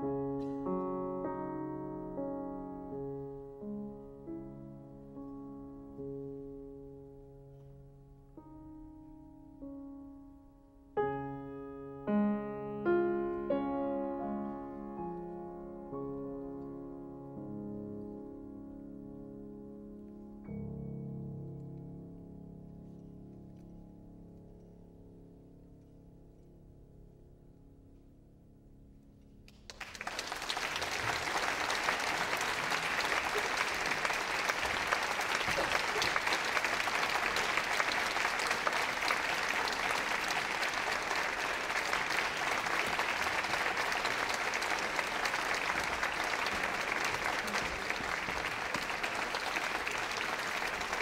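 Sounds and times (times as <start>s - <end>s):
piano chord: 0.0s - 27.8s
audience applauding: 29.5s - 51.0s.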